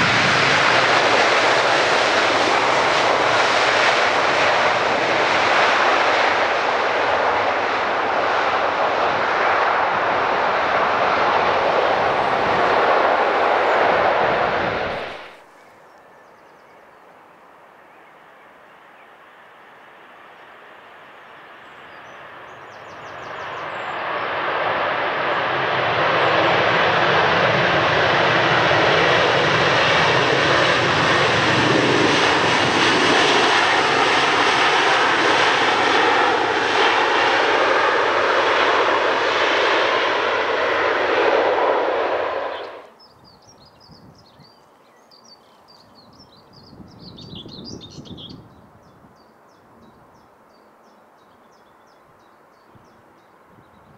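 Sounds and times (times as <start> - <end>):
jet engines roaring: 0.0 - 15.5, 19.2 - 43.0
faint birdsong: 15.2 - 24.4, 42.4 - 53.9.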